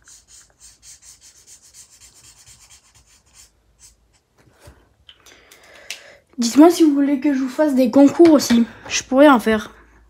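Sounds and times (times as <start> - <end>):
marker rubbing on paper: 0.0 - 4.3.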